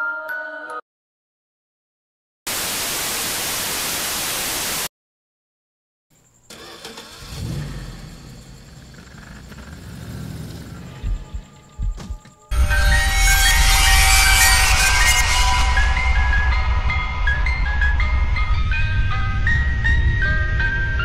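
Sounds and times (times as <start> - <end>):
static hiss burst: 2.5 - 4.9
low rumbling noise: 9.1 - 21.0.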